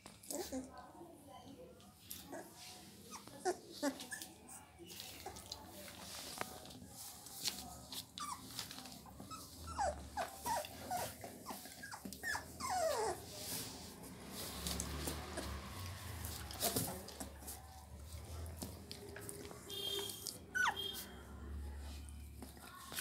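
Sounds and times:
puppies whimpering: 8.2 - 13.3, 20.5 - 21.0.

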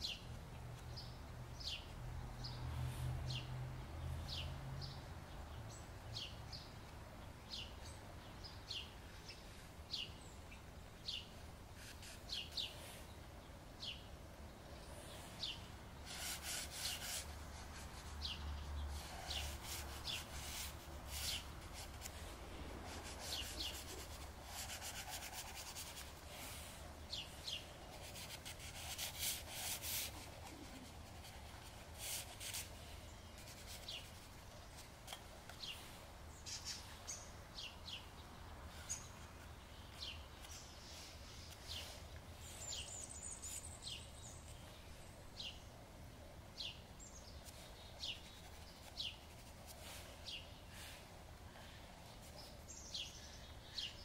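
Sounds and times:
bird chirping: 0.0 - 2.7, 4.2 - 45.7, 46.6 - 50.8, 52.2 - 54.0
pastel rubbing on paper: 16.0 - 26.6, 28.0 - 32.7, 48.1 - 49.9.

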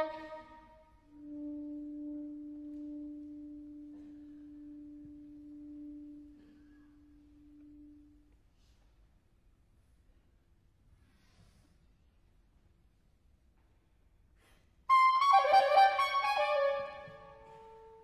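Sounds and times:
soprano saxophone low note: 0.0 - 8.5, 14.9 - 18.0.

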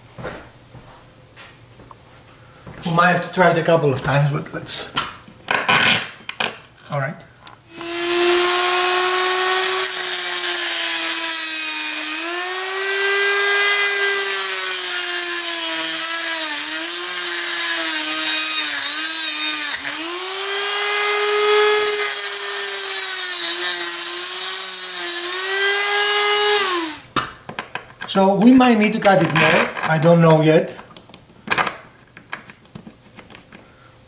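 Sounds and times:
disc grinding steel: 7.7 - 27.0
rotary tool motor whine: 7.7 - 27.1.

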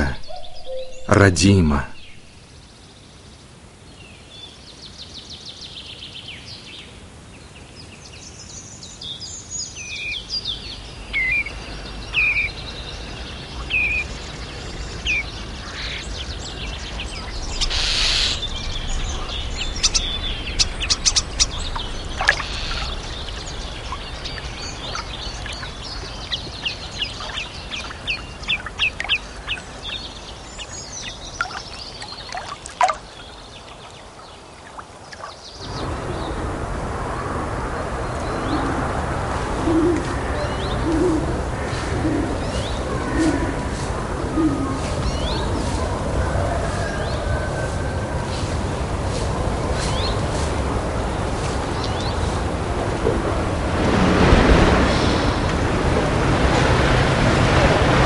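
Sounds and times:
birds chirping and trilling: 0.0 - 36.5, 37.1 - 52.9, 53.6 - 57.0
faint low rumble: 10.3 - 32.2.

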